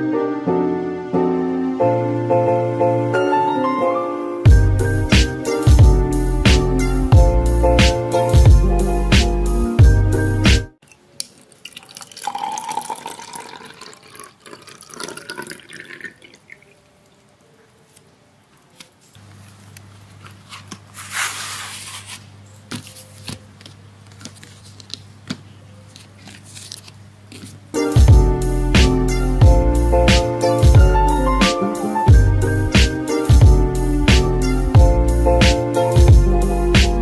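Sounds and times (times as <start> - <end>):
water filling plastic bottle: 11.2 - 16.9.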